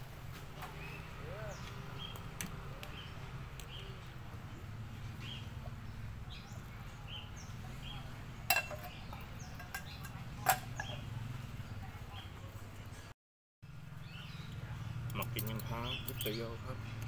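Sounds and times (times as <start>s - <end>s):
metal pot clinking: 8.5s - 11.1s.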